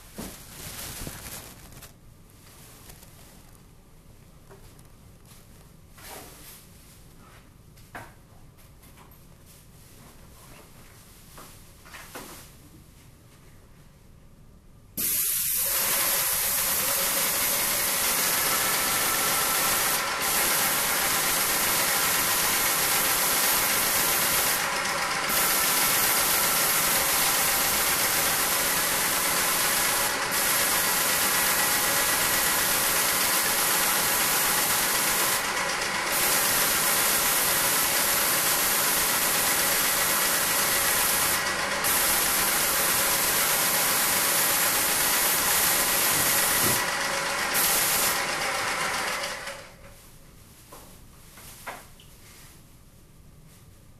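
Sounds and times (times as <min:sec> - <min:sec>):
spray hissing: 0:15.0 - 0:48.7
motor hum: 0:15.6 - 0:49.8.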